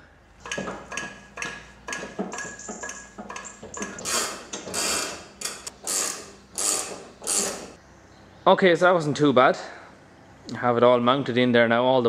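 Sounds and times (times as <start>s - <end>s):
metal clicking and clanking: 0.4s - 7.8s.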